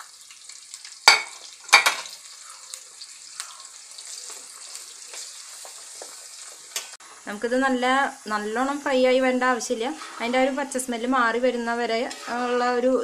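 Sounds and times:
garlic sizzling in oil: 0.0 - 13.0
pan clattering: 1.0 - 2.2.

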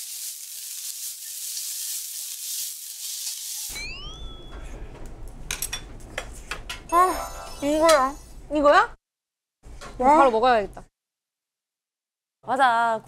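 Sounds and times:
rice sizzling in a pan: 0.0 - 3.8
short rising chirps: 3.7 - 4.8.

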